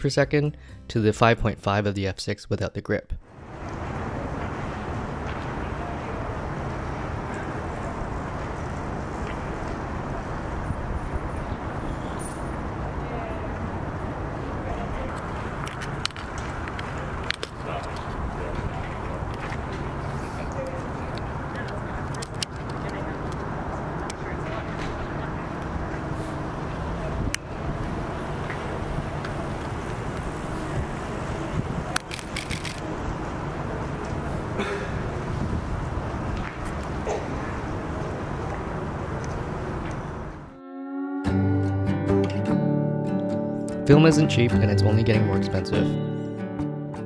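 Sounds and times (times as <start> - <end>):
distant traffic hum: 3.2 - 40.6.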